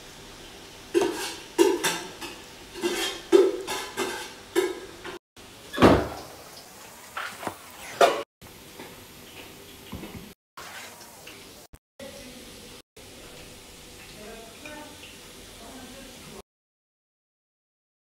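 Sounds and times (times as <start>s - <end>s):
metal spoon scraping ceramic plate: 1.0s - 4.8s.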